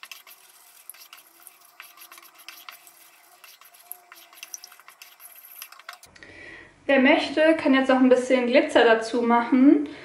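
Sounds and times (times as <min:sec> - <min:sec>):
wooden spoon scraping a saucepan: 0:00.0 - 0:06.1.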